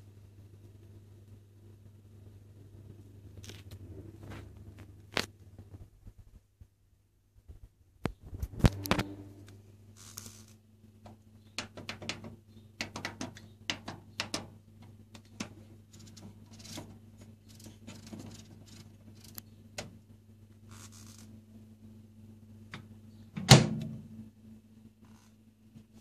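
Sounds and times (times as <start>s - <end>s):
low steady hum: 0.0s - 26.0s
hands tapping microwave panel: 11.6s - 14.5s
microwave door shutting: 23.4s - 24.0s.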